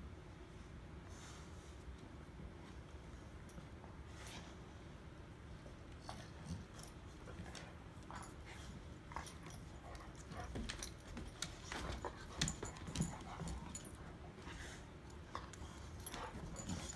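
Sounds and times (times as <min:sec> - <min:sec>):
dogs scuffling: 0:06.2 - 0:16.9.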